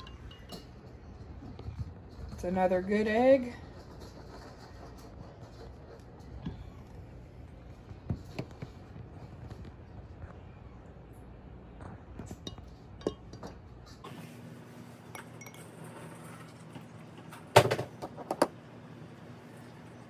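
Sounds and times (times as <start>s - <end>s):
eggs clinking on glass: 0.0s - 1.2s, 12.3s - 13.6s, 15.1s - 15.9s.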